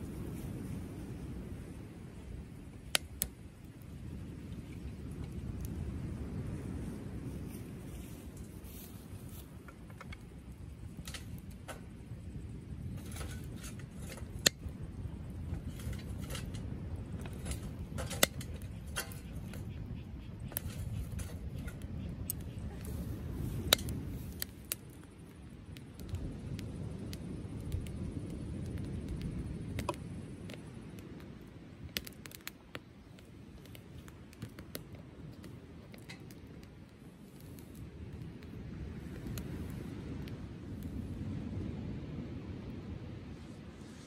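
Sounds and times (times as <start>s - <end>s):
faint fire crackles: 0.0s - 44.0s
wood fire burning: 0.0s - 44.0s
metal fire tongs clicking: 10.9s - 11.9s, 12.9s - 14.7s, 15.5s - 19.7s, 20.5s - 22.4s, 23.6s - 24.8s.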